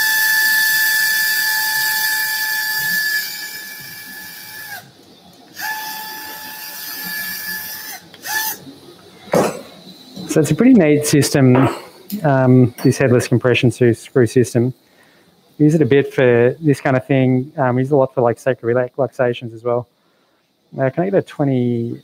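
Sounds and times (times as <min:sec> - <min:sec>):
power driver motor whine: 0:00.0 - 0:08.7.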